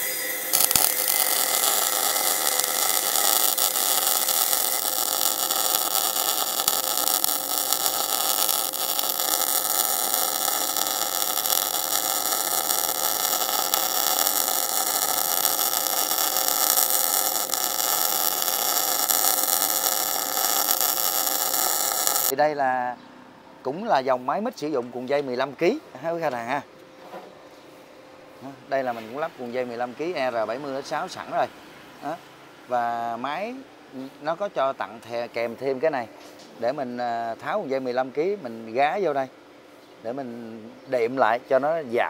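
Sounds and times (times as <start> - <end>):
welding arc crackling hiss: 0.0 - 22.3.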